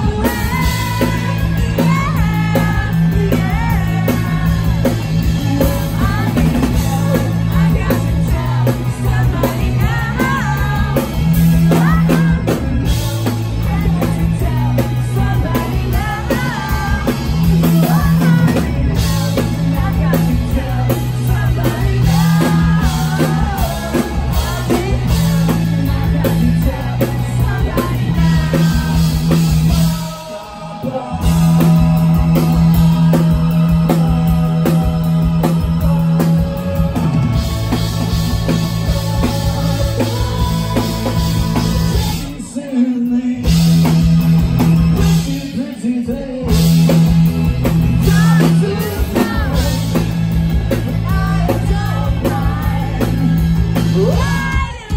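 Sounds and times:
drum kit: 0.0 - 54.9
electric bass: 0.0 - 54.9
person singing: 0.0 - 54.9.

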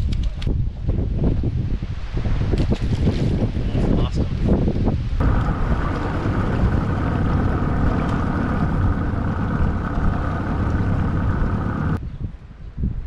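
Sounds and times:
wind buffeting microphone: 0.0 - 13.0
outboard motor whine: 5.2 - 12.0.

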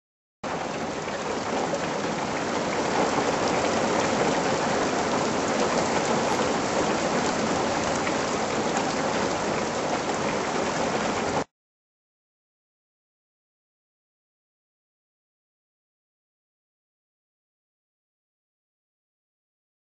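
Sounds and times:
heavy rain pouring: 0.4 - 11.5.

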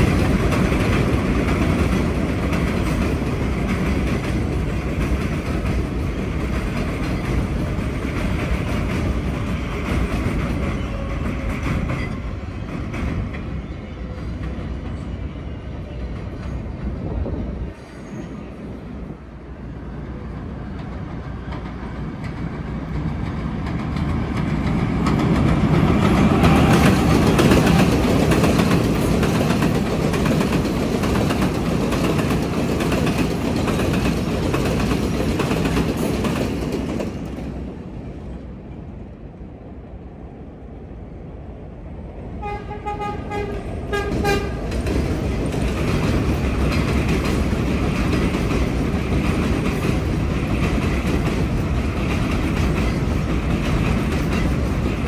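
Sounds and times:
subway train rumble: 0.0 - 55.0
train horn short toots: 42.4 - 44.6.

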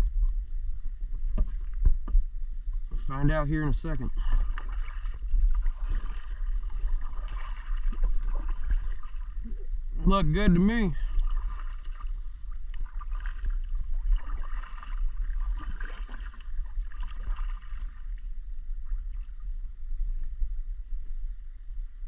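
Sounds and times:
steady low rumble: 0.0 - 22.0
paddle dipping in water: 3.9 - 20.2.

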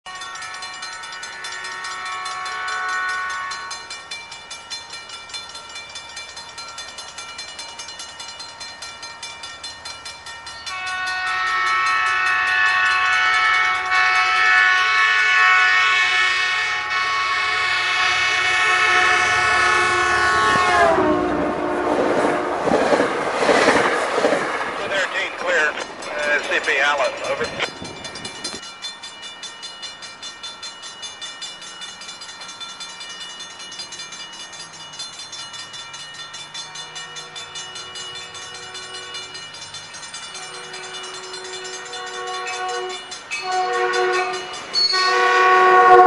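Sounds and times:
crossing bell ringing: 0.0 - 46.0
train horn blast: 0.1 - 3.9, 10.7 - 22.8, 40.5 - 46.0
passing train cars rumbling: 0.1 - 46.0.

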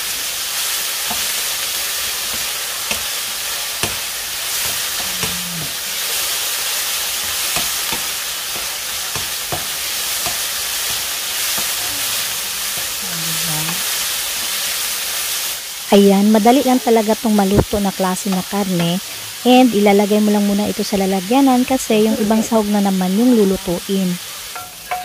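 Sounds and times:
pork sizzling in frying pan: 0.0 - 25.0
spatula scraping pan: 3.8 - 6.3.

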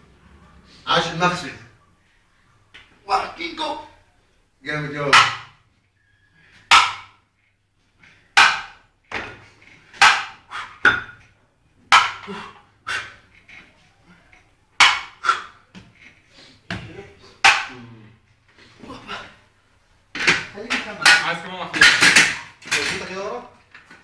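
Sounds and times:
dumbbells clinking: 8.0 - 17.9, 20.1 - 24.0
person breathing and grunting: 12.2 - 13.3, 15.2 - 19.5.

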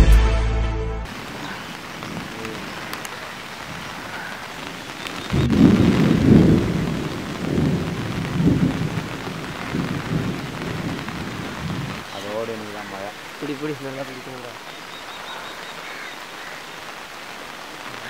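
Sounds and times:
steady rain: 1.0 - 18.0
thunder rumbling: 1.1 - 13.3.

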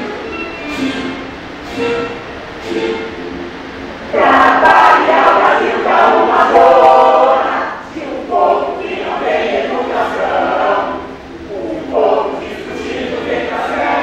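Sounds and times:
voices singing in unison: 4.1 - 14.0.

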